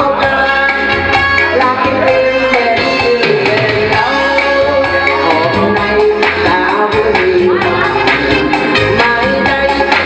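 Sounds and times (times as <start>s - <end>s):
electronic keyboard: 0.0s - 10.0s
steady drum beat: 0.0s - 10.0s
woman singing into a microphone: 0.0s - 10.0s.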